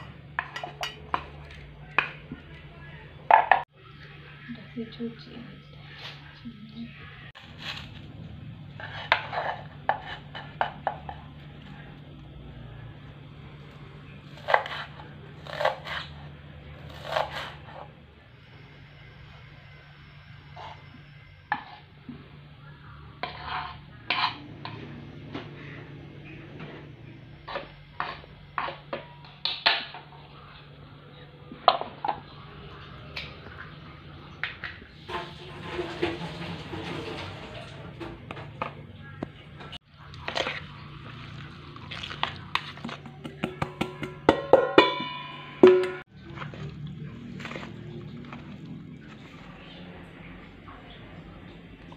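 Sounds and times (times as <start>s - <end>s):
ringing knocks on bowl: 43.5s - 46.0s.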